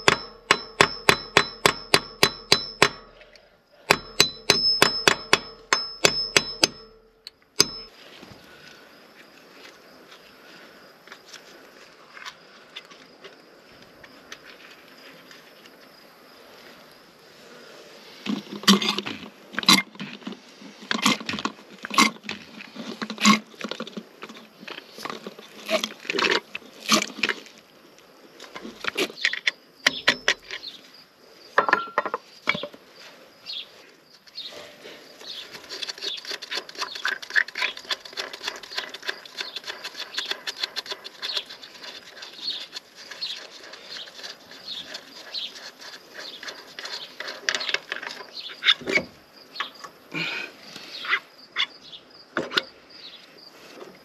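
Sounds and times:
hammer striking steel punch: 0.0s - 3.2s, 3.9s - 7.9s.

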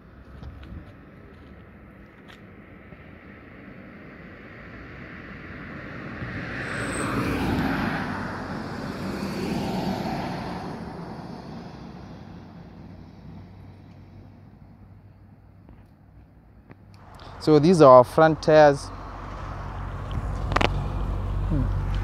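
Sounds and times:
road traffic passing: 0.0s - 22.0s
pickup truck passing: 4.3s - 15.0s, 17.0s - 22.0s.

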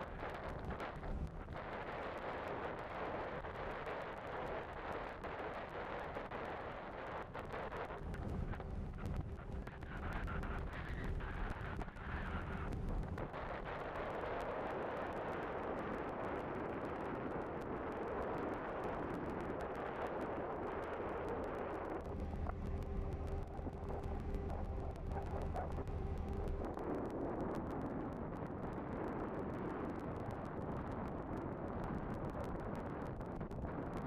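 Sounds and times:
ferry engine hum: 22.1s - 26.7s.

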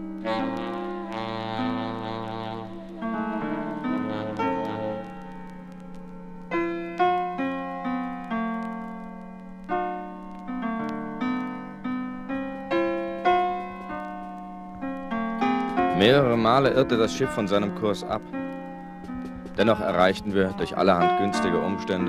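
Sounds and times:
keyboard single notes: 0.0s - 7.2s.

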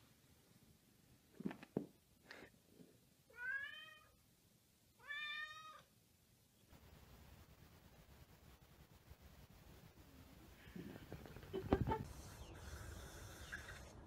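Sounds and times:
cat meowing: 3.3s - 4.2s, 5.0s - 5.9s.

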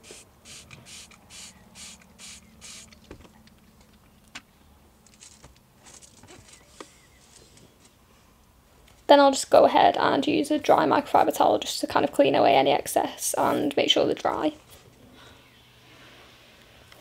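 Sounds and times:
spray bottle squirting: 0.0s - 3.0s.

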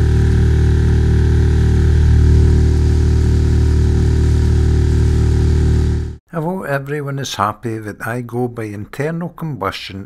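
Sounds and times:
outboard motor running: 0.0s - 6.2s.

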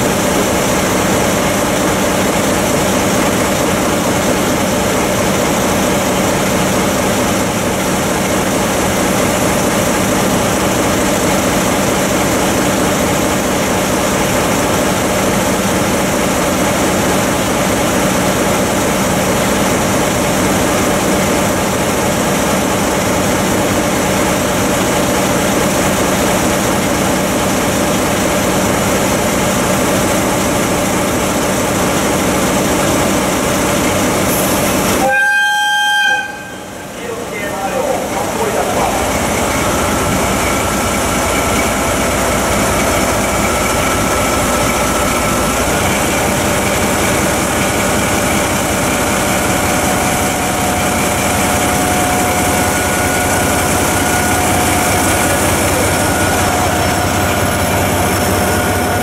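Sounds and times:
diesel locomotive engine idling: 0.0s - 59.0s.

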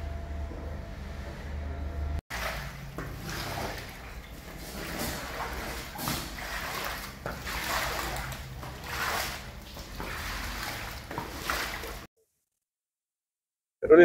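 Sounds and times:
water sloshing under squeegee: 2.3s - 12.1s.

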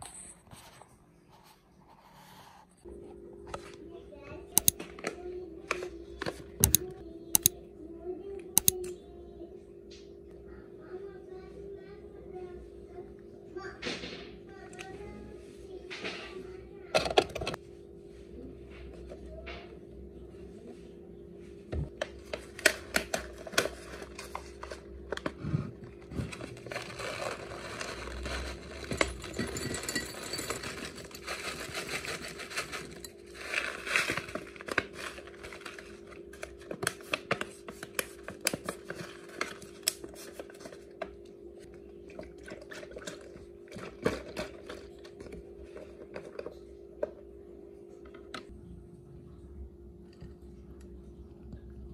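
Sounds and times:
faint steady hum: 0.0s - 51.9s
plastic pouch rustling: 26.3s - 29.0s.

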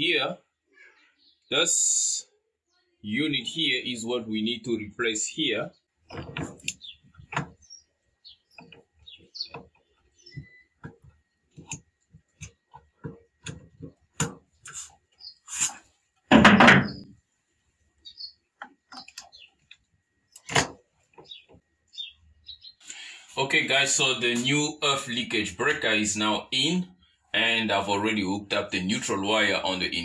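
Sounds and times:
plastic clicks and knocks: 6.1s - 7.6s, 8.5s - 14.5s, 20.4s - 21.7s.

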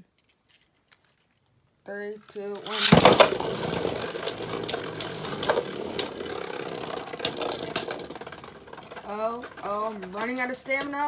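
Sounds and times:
spinning tops whirring: 2.5s - 11.0s
spinning tops clacking together: 2.6s - 11.0s.

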